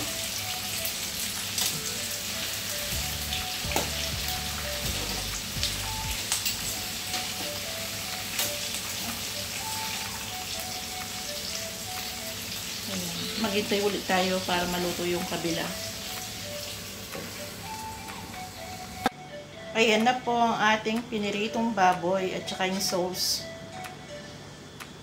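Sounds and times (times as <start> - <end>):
meat sizzling in oil: 0.0 - 18.8.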